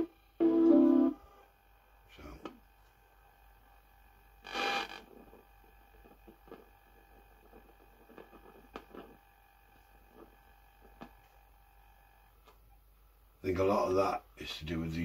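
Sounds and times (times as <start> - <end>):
speaker crackling and scratching: 4.3 - 11.6.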